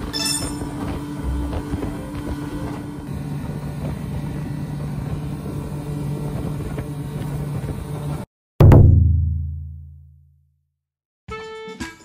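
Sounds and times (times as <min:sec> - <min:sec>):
outboard motor running: 0:00.0 - 0:08.2
wind: 0:00.0 - 0:08.3.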